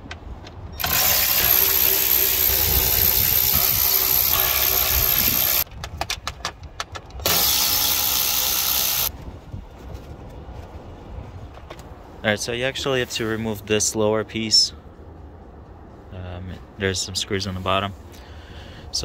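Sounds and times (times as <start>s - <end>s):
electric ratchet running: 0.8s - 5.6s, 7.2s - 9.1s.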